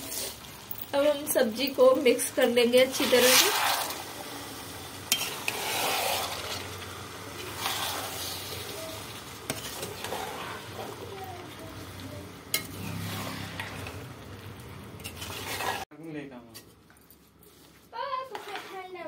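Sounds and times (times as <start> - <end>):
vegetables sizzling in oil: 0.0 - 15.9
spoon scraping pan: 1.6 - 4.2, 5.0 - 14.2, 14.9 - 15.9, 18.2 - 19.0.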